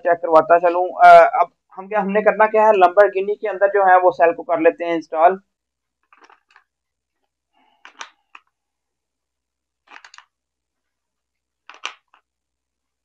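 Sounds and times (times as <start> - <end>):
small plastic clicks and taps: 7.8 - 8.6, 9.9 - 10.3, 11.6 - 12.3.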